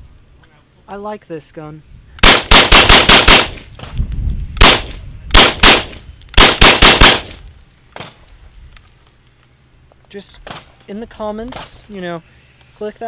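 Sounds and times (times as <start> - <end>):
rapid gunshots: 2.2 - 3.6, 4.6 - 7.3.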